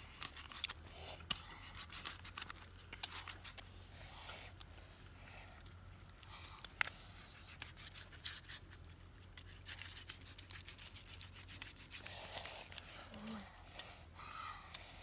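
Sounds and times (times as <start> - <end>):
cleaver cutting and scraping meat: 0.1 - 3.8, 6.8 - 13.0.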